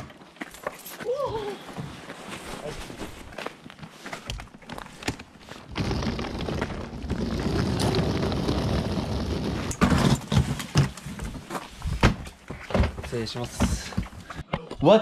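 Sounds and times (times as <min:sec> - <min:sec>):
suitcase rolling over asphalt: 0:04.4 - 0:14.2.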